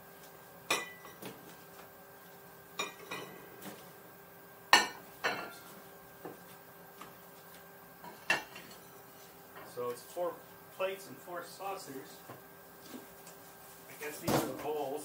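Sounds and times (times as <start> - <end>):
plates clinking: 2.8 - 3.4, 4.8 - 5.6.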